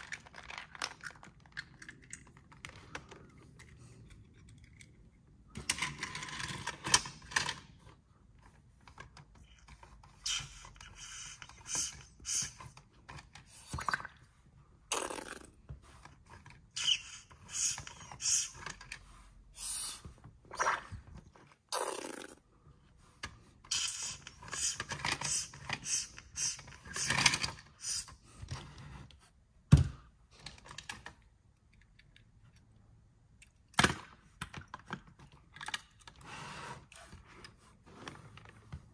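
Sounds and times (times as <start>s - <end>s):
plastic toy clicks and scrapes: 0.0s - 7.8s, 8.8s - 13.7s, 16.0s - 19.9s, 23.6s - 28.8s.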